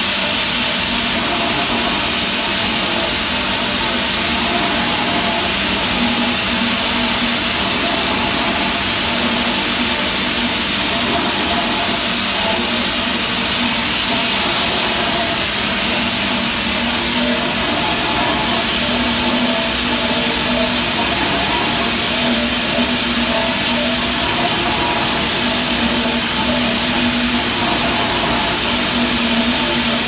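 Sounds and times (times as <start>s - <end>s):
loud machinery hiss: 0.0s - 30.0s.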